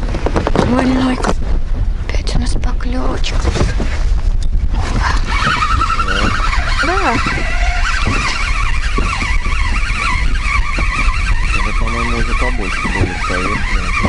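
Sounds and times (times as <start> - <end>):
small outboard motor running: 3.7 - 14.0.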